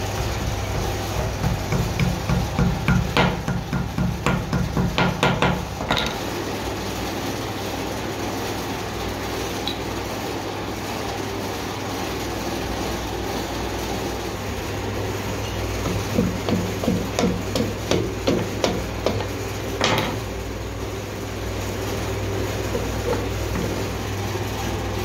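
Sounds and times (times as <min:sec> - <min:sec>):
hammer tapping metal: 0:00.8 - 0:06.2, 0:15.8 - 0:20.2.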